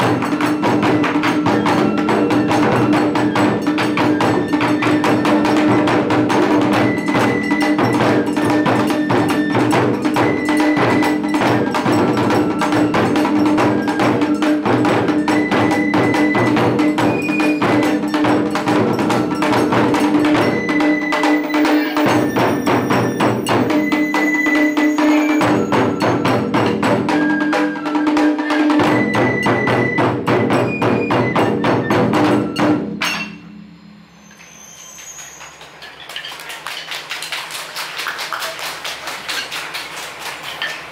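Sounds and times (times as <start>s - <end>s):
ensemble of barrel drums: 0.0s - 40.9s.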